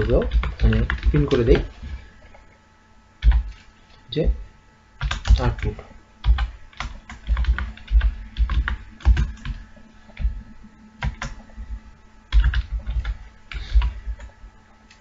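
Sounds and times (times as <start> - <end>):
computer keyboard typing: 0.0 - 1.9, 3.2 - 3.7, 5.0 - 10.4, 11.0 - 11.5, 12.3 - 14.3.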